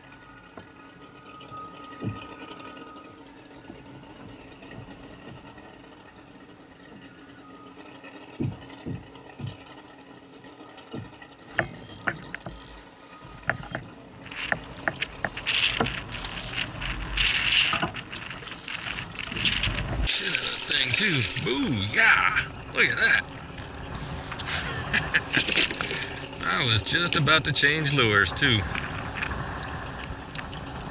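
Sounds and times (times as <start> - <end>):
clicks and knocks from reel and kayak: 0.5 - 21.8, 25.3 - 27.8
fish splashing in water: 8.1 - 26.4
fishing reel being cranked: 11.5 - 19.6.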